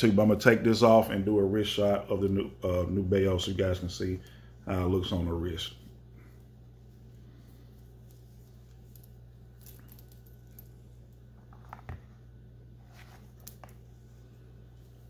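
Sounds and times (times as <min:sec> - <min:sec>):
steady low hum: 0:00.0 - 0:15.0
soft clicks and rustles: 0:06.2 - 0:15.0.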